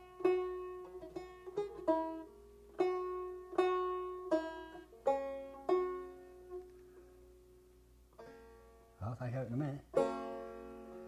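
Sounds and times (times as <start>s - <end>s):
banjo picked slowly: 0.0s - 11.0s.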